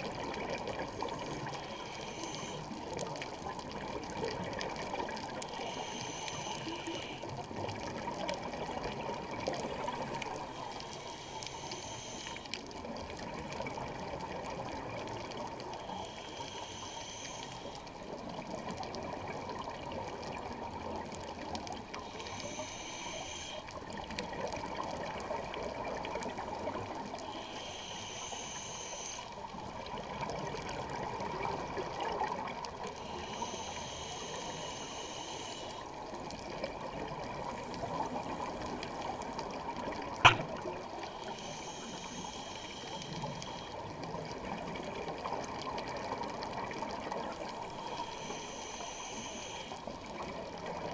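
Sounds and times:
underwater water and bubbles rushing: 0.0s - 50.9s
regulator breath hiss: 1.5s - 2.9s, 5.4s - 7.4s, 9.8s - 12.6s, 15.6s - 17.9s, 22.0s - 23.8s, 27.1s - 29.5s, 33.0s - 36.0s, 40.2s - 44.1s, 47.4s - 50.3s.

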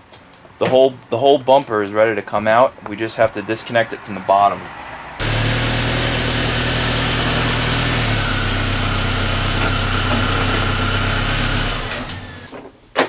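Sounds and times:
machine motor humming: 5.2s - 12.5s.

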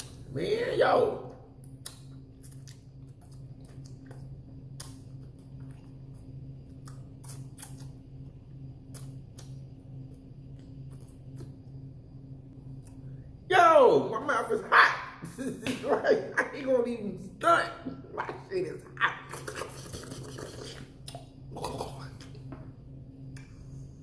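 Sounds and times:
steady low hum: 0.0s - 24.0s
mouth clicks and lip smacks: 1.6s - 5.9s, 6.7s - 8.0s, 19.3s - 21.3s.

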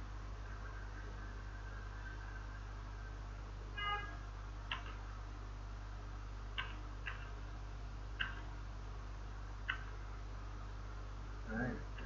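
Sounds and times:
low electrical hum: 0.0s - 12.0s
computer mouse clicking: 4.7s - 5.0s, 6.6s - 7.4s, 8.2s - 8.5s, 9.6s - 9.9s.

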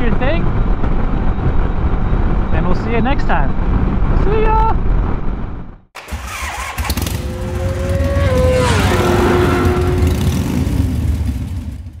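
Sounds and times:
low rumble: 6.9s - 12.0s.

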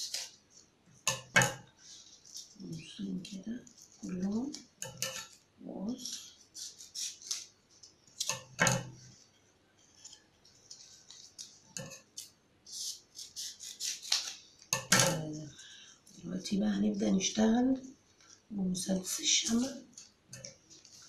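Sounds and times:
scissors snipping foam: 13.1s - 14.4s.

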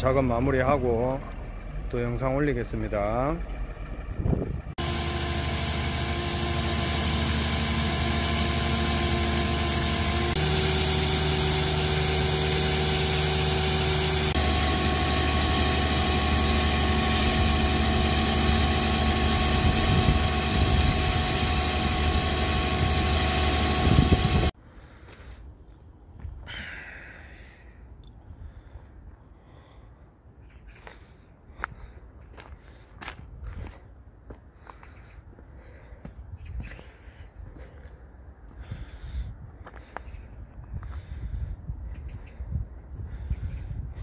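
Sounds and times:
excavator engine running: 0.0s - 25.0s
hydraulic whine: 3.5s - 24.6s.

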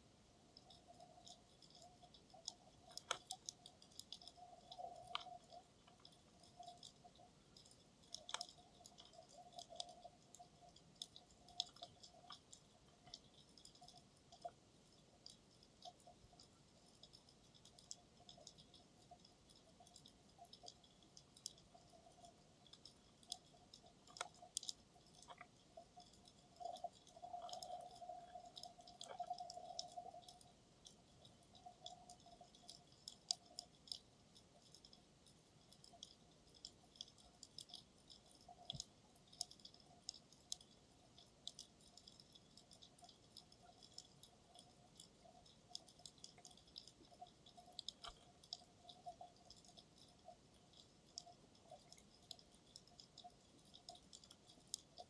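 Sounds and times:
faint steady hum: 0.0s - 55.0s
underwater clicks and crackles: 0.0s - 55.0s.

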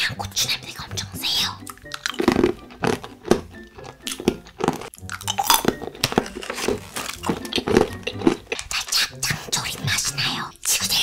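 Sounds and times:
crunchy snack being chewed: 1.5s - 10.2s.

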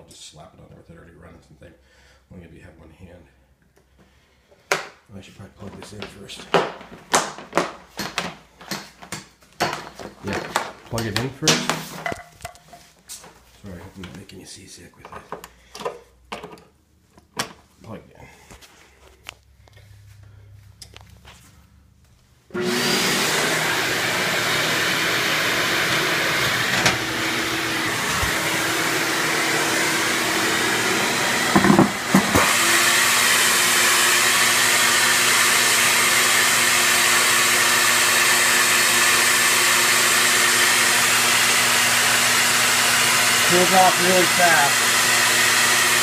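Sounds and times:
shop vac running: 5.4s - 12.5s, 22.5s - 46.0s.

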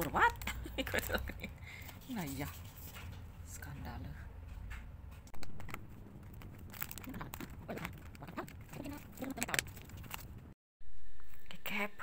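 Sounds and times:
packaging crinkling and rustling: 5.4s - 10.4s.

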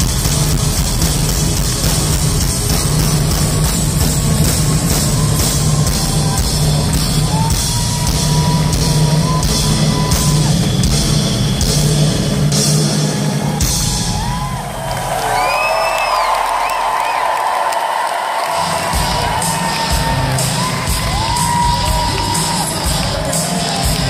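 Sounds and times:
live rock band playing: 0.0s - 14.5s, 18.5s - 24.0s
drum beat: 0.0s - 15.2s, 18.4s - 24.0s
heavy bass: 0.0s - 15.2s, 18.5s - 24.0s
crowd cheering and whooping: 3.8s - 11.6s, 12.5s - 24.0s.

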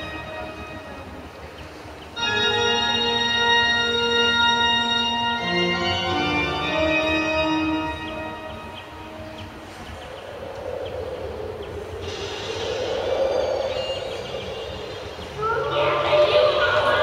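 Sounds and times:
organ-like chords: 0.0s - 10.4s.

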